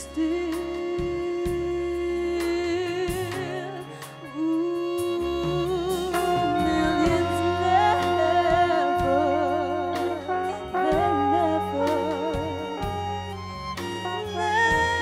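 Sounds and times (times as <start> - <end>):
live band music: 0.0 - 15.0
trombone melody with vibrato: 4.4 - 15.0.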